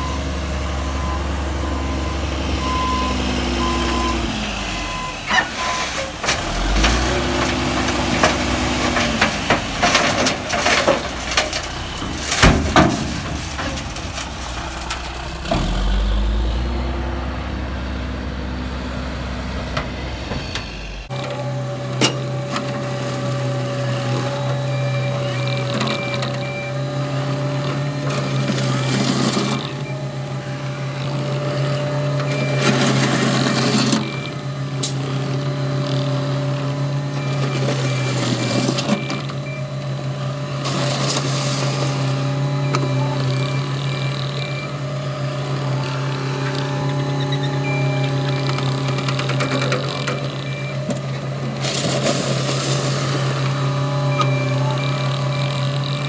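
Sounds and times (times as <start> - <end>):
diesel engine running: 0.0 - 56.0
bucket scraping through gravel: 5.3 - 15.9, 40.6 - 42.5, 51.5 - 53.9.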